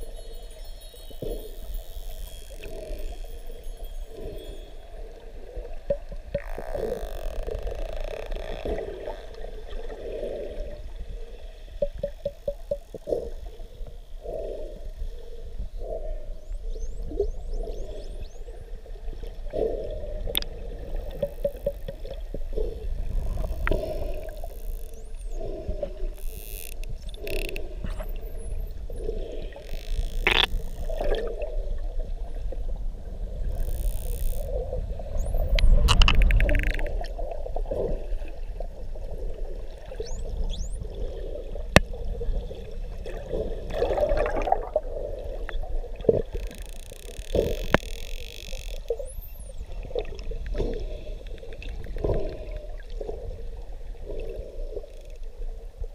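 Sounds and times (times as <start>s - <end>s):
underwater water noise: 0.0s - 55.9s
dolphin clicks: 29.6s - 31.0s, 35.2s - 37.1s, 46.2s - 49.6s.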